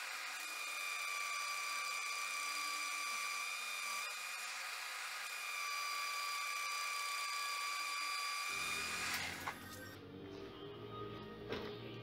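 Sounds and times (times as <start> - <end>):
metal lathe cutting whine: 0.0 - 9.8
music: 9.6 - 12.0.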